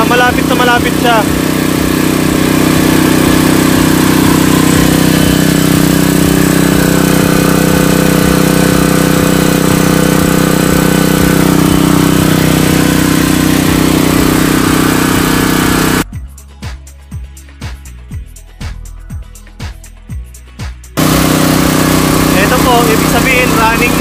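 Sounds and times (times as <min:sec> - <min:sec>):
generator engine running: 0:00.0 - 0:16.1, 0:20.9 - 0:24.0.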